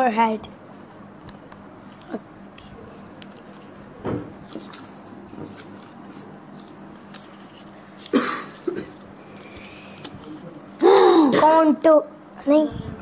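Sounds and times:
paper crinkling: 0:01.8 - 0:08.2
cough-like vocal burst: 0:08.1 - 0:08.9, 0:10.8 - 0:11.6.

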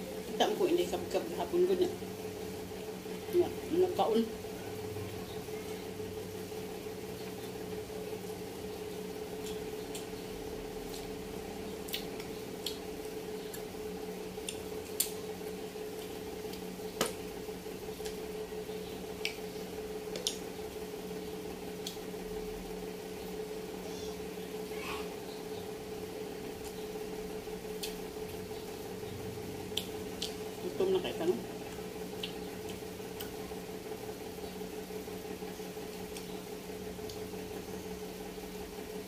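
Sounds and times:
steady hum: 0:00.0 - 0:39.0
wet chewing and squishing: 0:10.8 - 0:11.2, 0:11.8 - 0:13.7, 0:31.7 - 0:33.4.

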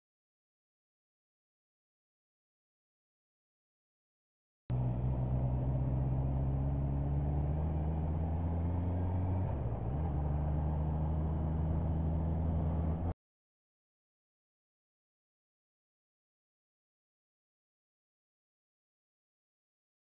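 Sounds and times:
motorcycle engine running: 0:04.7 - 0:13.1.

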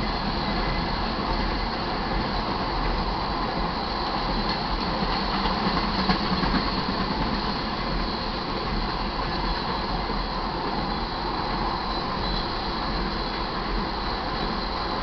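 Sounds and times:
train wheels running on rails: 0:00.0 - 0:15.0.

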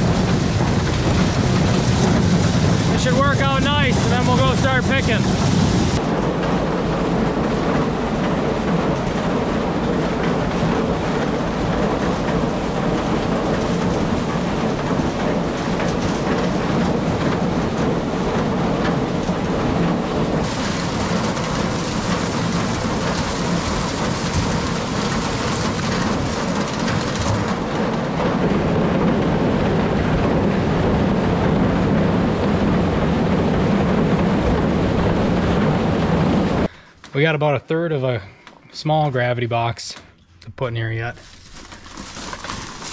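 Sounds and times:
tractor engine running: 0:00.0 - 0:37.3
corn rattling on chain elevator: 0:41.2 - 0:42.9.

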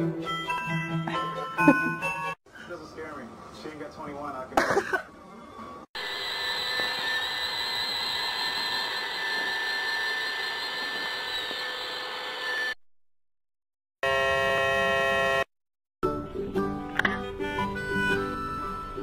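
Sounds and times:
robot vacuum whirring: 0:06.0 - 0:12.8.

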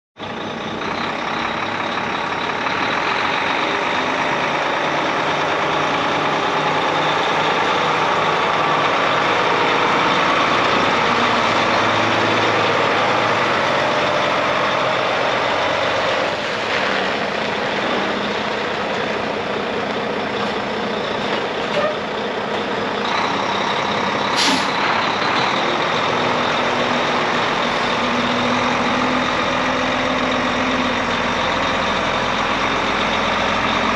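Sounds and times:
truck diesel engine running: 0:00.2 - 0:33.9
air brake hiss: 0:24.4 - 0:24.8.

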